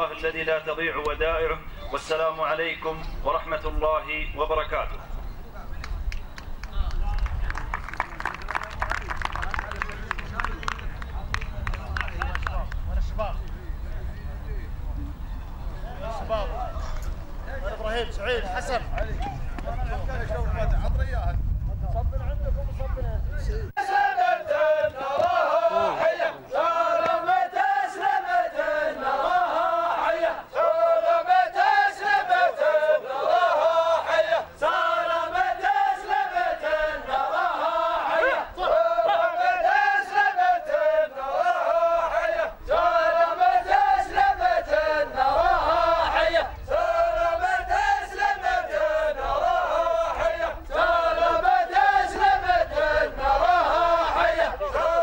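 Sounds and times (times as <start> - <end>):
men chanting in unison: 23.8 - 55.0.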